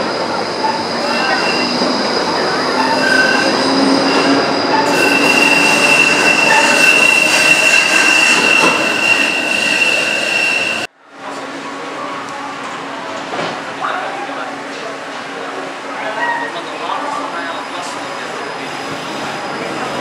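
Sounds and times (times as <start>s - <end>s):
tram wheels squealing on rails: 0.0s - 10.9s, 16.0s - 20.0s.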